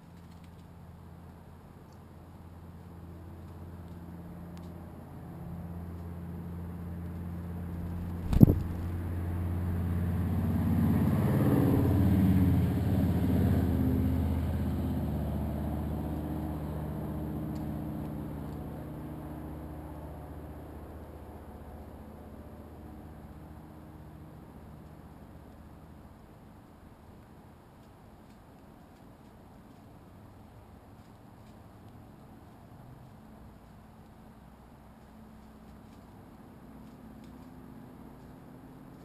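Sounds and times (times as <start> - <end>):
vehicle engine passing by: 5.2 - 20.6
sharp tap near microphone: 8.1 - 8.9.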